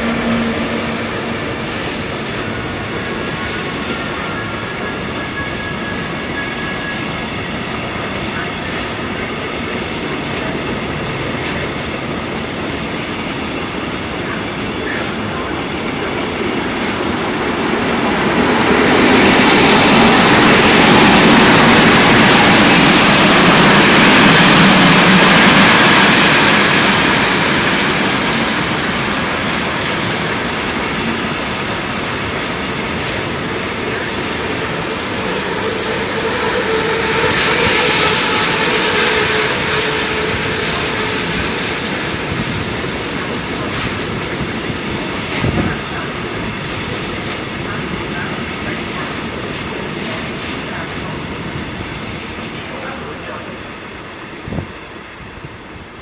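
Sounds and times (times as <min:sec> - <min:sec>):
train wheels rumbling on rails: 0:00.0 - 0:56.0
high wheel squeals: 0:35.2 - 0:41.5.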